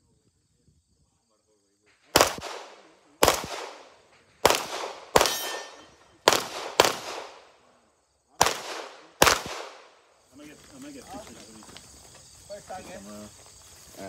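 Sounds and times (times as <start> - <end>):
pistol shots echoing: 2.1 - 7.6, 8.4 - 10.0.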